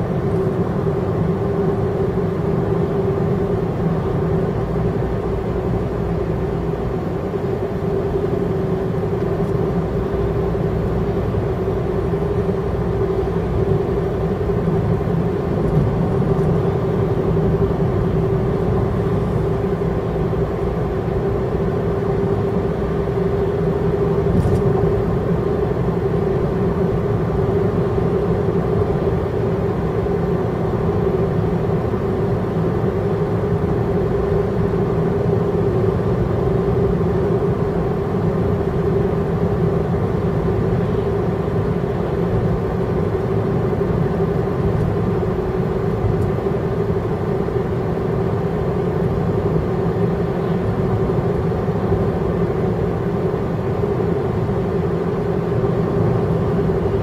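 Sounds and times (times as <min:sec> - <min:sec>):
car road and engine rumble: 0:00.0 - 0:57.0.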